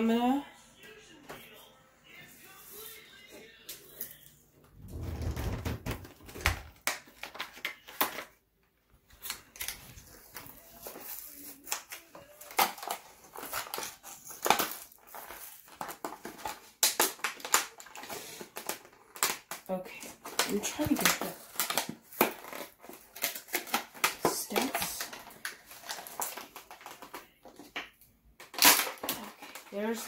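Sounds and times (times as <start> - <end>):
plastic packaging crinkling: 4.8 - 8.4, 9.1 - 27.8, 28.4 - 30.0
card ripping: 9.2 - 27.4, 28.4 - 29.9.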